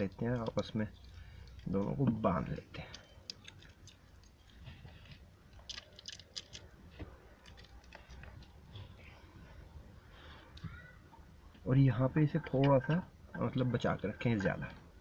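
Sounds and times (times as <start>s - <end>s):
packing tape crackling: 0.0s - 8.6s.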